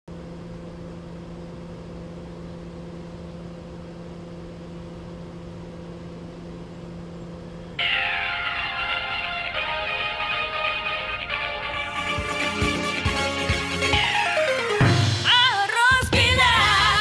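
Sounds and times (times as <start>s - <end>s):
microwave oven humming: 0.1s - 17.0s
microwave musical alert: 7.8s - 17.0s.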